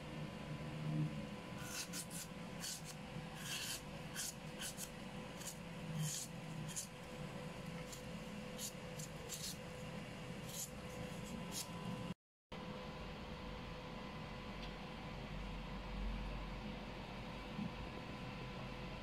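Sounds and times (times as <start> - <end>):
knife chopping papaya: 1.6 - 7.0.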